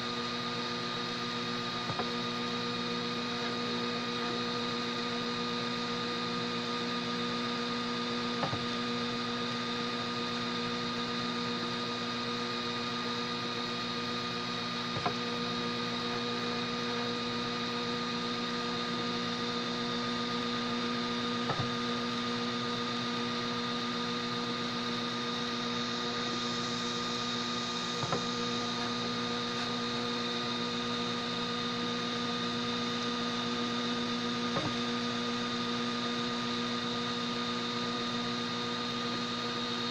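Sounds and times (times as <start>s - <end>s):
three d printer humming: 14.7s - 36.6s.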